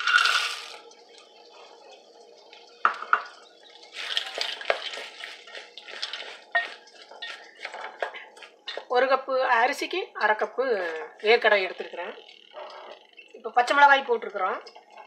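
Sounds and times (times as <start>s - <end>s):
peanuts pouring into metal pot: 0.0s - 0.8s
wooden spoon scraping pot: 4.0s - 8.9s.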